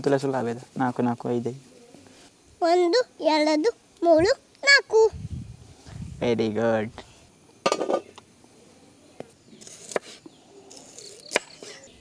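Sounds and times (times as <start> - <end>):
birds calling: 7.7 - 12.0.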